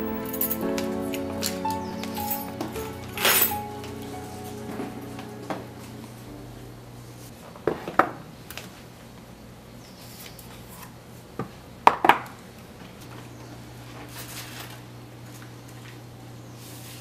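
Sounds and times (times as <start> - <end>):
low steady hum: 0.0 - 7.4.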